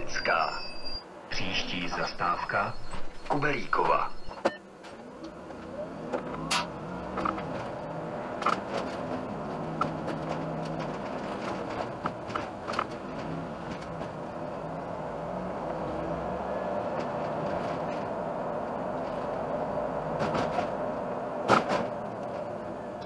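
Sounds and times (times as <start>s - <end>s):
bus engine and road noise: 0.0s - 23.0s.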